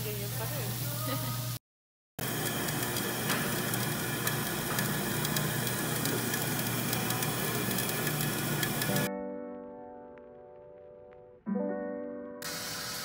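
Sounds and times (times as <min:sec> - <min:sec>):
shaved-ice machine rushing: 0:02.2 - 0:09.1.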